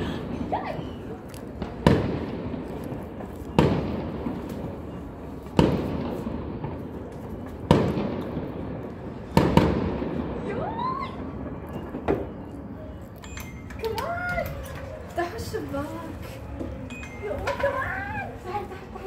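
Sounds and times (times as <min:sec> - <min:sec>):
fireworks bangs with echo: 0:01.5 - 0:13.4.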